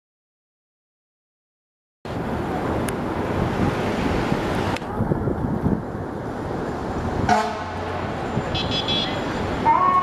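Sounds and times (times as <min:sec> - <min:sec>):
city traffic: 0:02.1 - 0:10.0
diesel engine rumble: 0:02.1 - 0:10.0
wind on microphone: 0:02.1 - 0:10.0
horn blast: 0:07.3 - 0:07.9.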